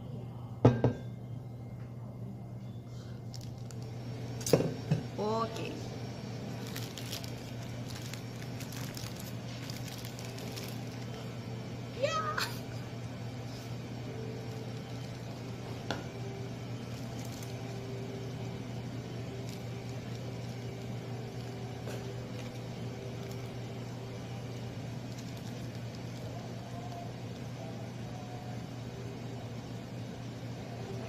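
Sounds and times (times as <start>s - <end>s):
kitchen room hum: 0.0s - 31.0s.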